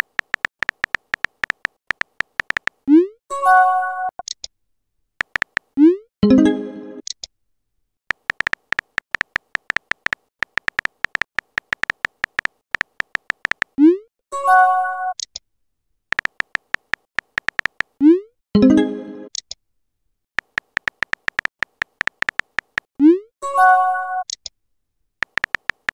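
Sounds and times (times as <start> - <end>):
keyboard tap clicks: 0.0 - 2.8, 5.2 - 5.7, 8.1 - 13.8, 16.1 - 18.0, 20.4 - 22.9, 25.2 - 25.9.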